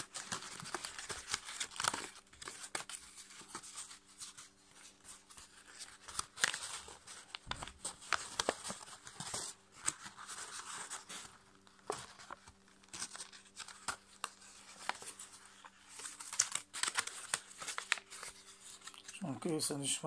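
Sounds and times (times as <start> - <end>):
paper rustling and crackling: 0.0 - 19.7.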